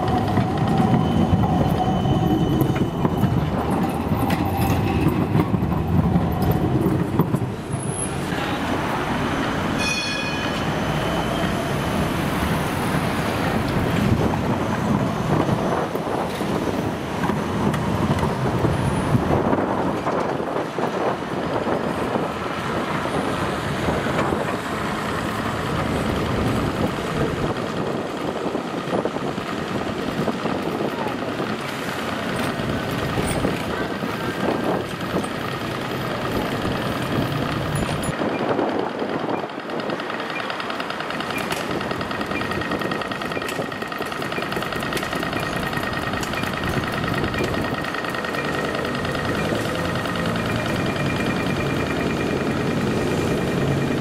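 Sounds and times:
trams running on street track: 0.0 - 54.0
motor scooter passing: 43.8 - 54.0.

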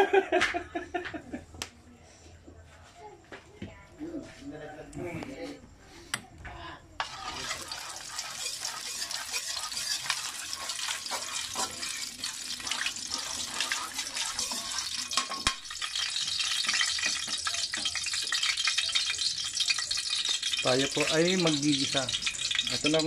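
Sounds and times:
metal ladle stirring: 7.0 - 23.0
oil sizzling in a wok: 7.0 - 23.0.

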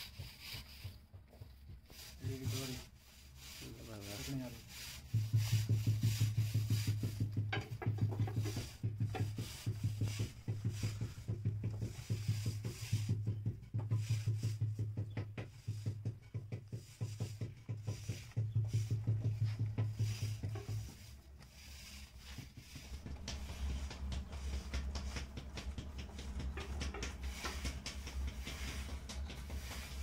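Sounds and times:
hands rubbing wet clay: 0.0 - 30.0
potter's wheel humming: 15.8 - 30.0.

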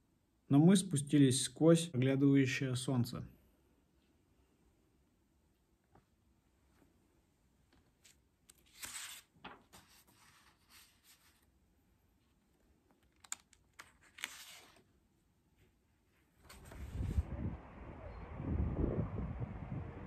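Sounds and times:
low outdoor noise: 0.0 - 20.0
paper sheets rustling: 7.8 - 11.5, 13.2 - 14.9, 16.4 - 17.1.

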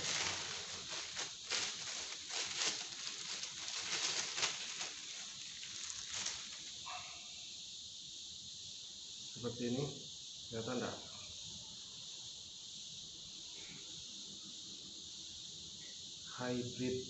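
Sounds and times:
plastic wrap crinkling: 0.0 - 7.0.

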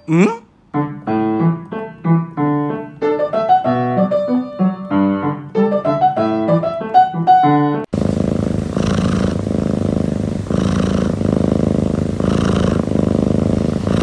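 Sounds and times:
piano melody: 0.0 - 7.9.

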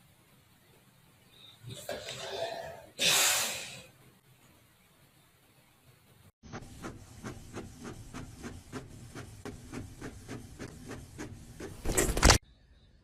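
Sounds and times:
inkjet printer printing: 6.5 - 12.4.

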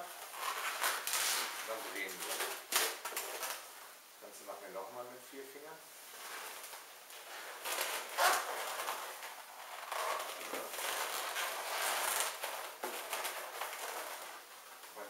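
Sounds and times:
balloon rubbing and squeaking: 0.3 - 3.5, 6.2 - 14.5.

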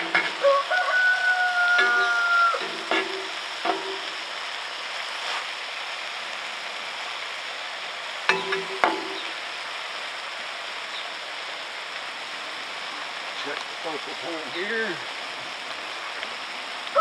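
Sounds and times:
sausage sizzling in a skillet: 0.0 - 17.0.

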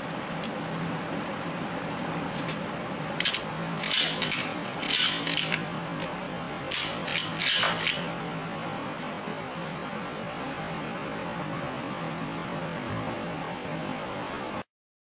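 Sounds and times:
toy gun ratcheting plastic clicks: 3.2 - 5.6, 6.7 - 8.0.

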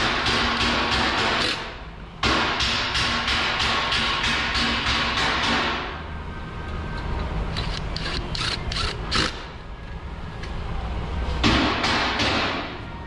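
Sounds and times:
ratchet wrench clicking: 7.5 - 9.4.

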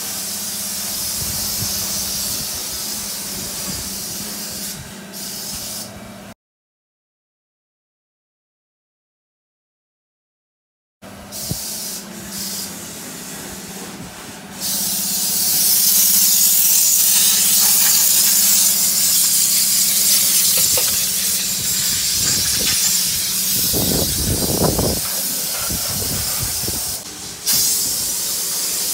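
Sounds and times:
loud high-pitched hiss: 0.0 - 5.9, 11.3 - 12.8, 14.6 - 28.9.

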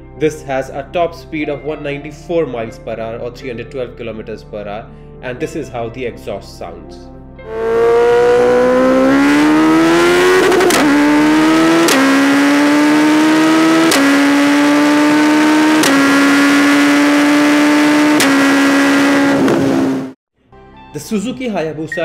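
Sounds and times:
motorcycle engine accelerating: 7.4 - 20.2
exhaust crack on upshift: 7.8 - 13.2.

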